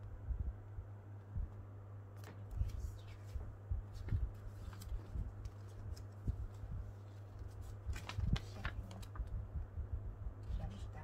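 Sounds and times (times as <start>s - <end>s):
low steady hum: 0.0s - 11.0s
paper rustling and crackling: 2.2s - 9.3s.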